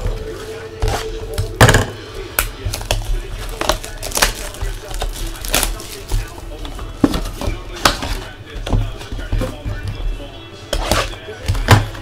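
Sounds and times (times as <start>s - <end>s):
foil packs crackling: 2.2s - 9.9s.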